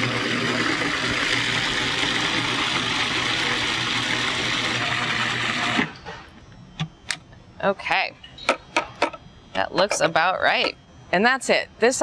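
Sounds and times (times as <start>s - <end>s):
food processor running: 0.0s - 6.0s.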